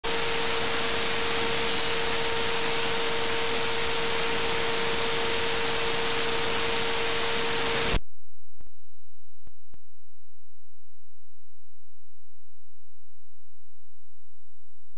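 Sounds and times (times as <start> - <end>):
radio static hiss: 0.1 - 8.0.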